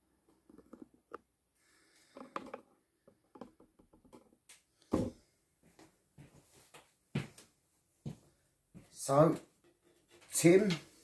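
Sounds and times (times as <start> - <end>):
thump: 4.9 - 5.2
footsteps: 4.9 - 9.4.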